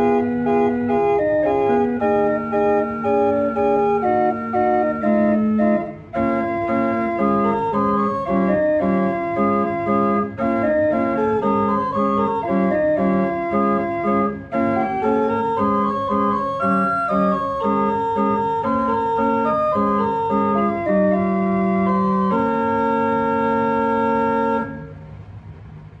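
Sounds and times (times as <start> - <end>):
church organ playing chords: 0.0 - 25.0.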